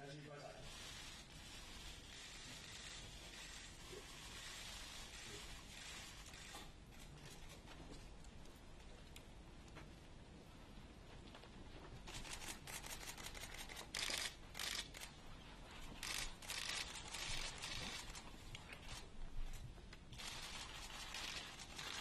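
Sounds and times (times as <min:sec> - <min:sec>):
camera shutters clicking: 0:12.1 - 0:15.1, 0:16.0 - 0:18.2, 0:20.2 - 0:22.0.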